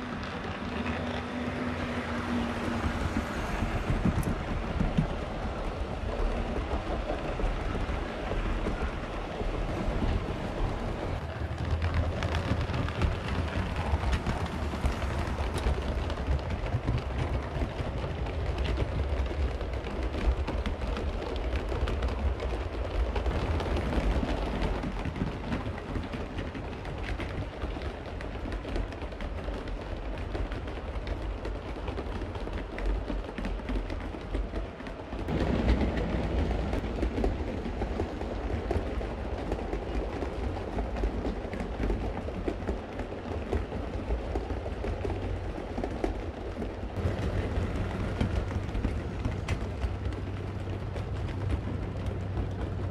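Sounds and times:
model train rumble: 0.0s - 52.9s
wheels clicking on rail: 0.0s - 52.9s.

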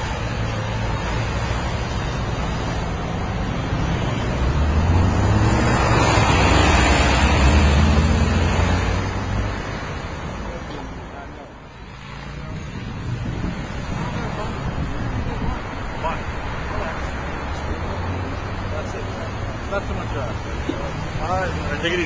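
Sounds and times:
cars passing: 0.0s - 22.0s
wind buffeting microphone: 12.5s - 16.1s.

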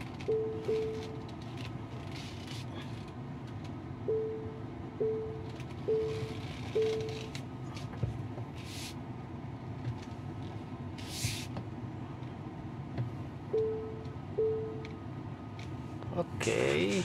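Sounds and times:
low cabin hum: 0.0s - 17.0s
parking sensor chime beeping: 0.2s - 1.3s, 4.0s - 7.3s, 13.5s - 14.9s.

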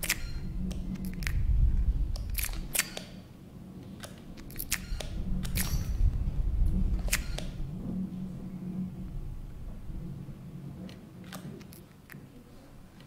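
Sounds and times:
sharp clicks and crackles: 0.0s - 3.2s, 4.0s - 5.9s, 7.0s - 7.6s
low rumble: 0.0s - 11.4s
steady low hum: 0.0s - 13.0s.

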